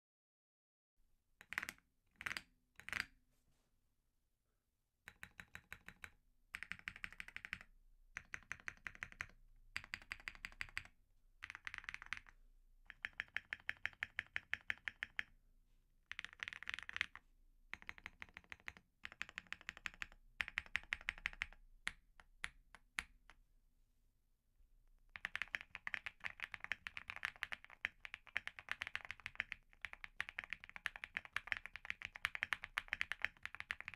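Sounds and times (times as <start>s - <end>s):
loud keyboard clicks: 1.4s - 3.1s, 5.1s - 7.6s, 8.2s - 12.3s, 12.9s - 15.3s, 16.1s - 17.2s, 17.8s - 21.6s, 25.2s - 33.9s
mechanical keyboard typing: 1.4s - 3.1s, 5.1s - 12.3s, 12.9s - 15.3s, 16.1s - 21.6s, 25.1s - 33.9s.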